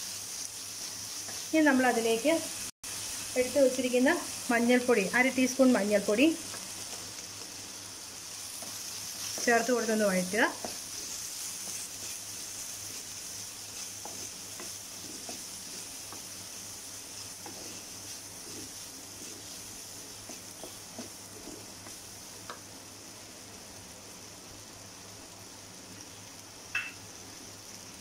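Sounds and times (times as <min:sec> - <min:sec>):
vegetables sizzling in hot oil: 0:00.0 - 0:28.0
wooden spatula scraping a pot: 0:08.5 - 0:22.0.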